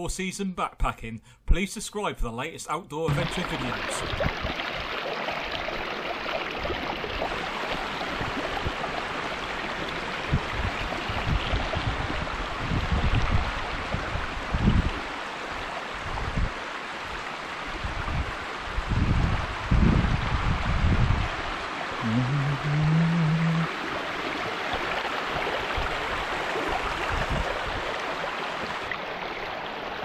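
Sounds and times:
running water rushing: 3.1s - 30.0s
wind buffeting microphone: 4.0s - 5.0s, 6.6s - 15.1s, 16.0s - 22.8s, 23.4s - 28.8s.

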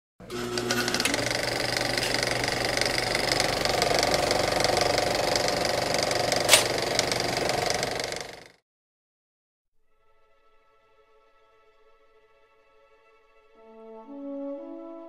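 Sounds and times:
film projector clatter: 0.2s - 8.6s
sharp click: 6.4s - 7.2s.

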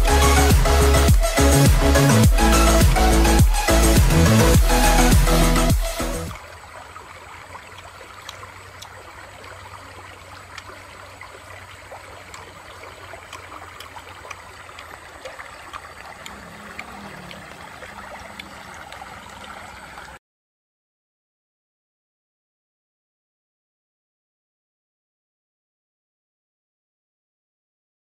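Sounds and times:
river babbling over stones: 6.3s - 20.2s
faint ticks: 7.5s - 20.1s.

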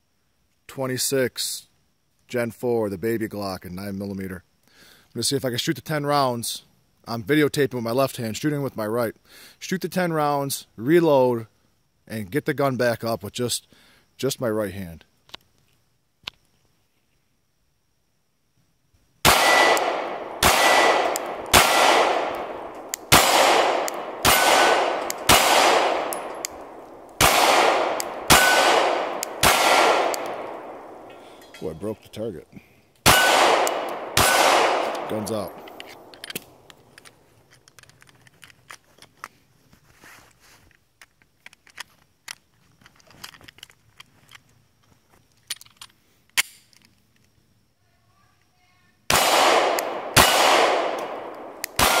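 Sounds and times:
pistol shots echoing: 19.2s - 32.1s, 33.0s - 36.8s, 49.1s - 52.0s
loud sharp gun snap: 19.3s - 31.7s, 33.0s - 37.1s, 46.4s - 46.7s, 49.1s - 52.0s.

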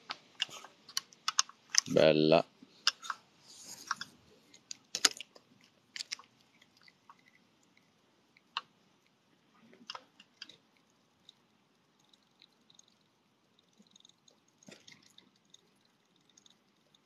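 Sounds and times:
faint clicks and taps: 0.0s - 2.0s, 2.8s - 11.4s
low hiss: 0.0s - 17.0s.

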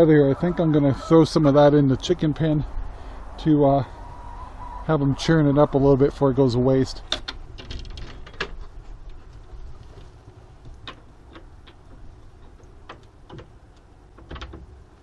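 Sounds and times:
low steady rumble: 0.0s - 15.0s
wooden roof knocks and clicks: 7.1s - 8.6s, 9.9s - 14.8s.

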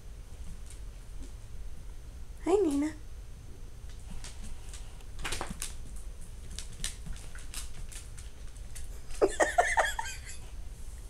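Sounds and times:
dog claws clicking on hardwood floor: 3.9s - 8.9s.

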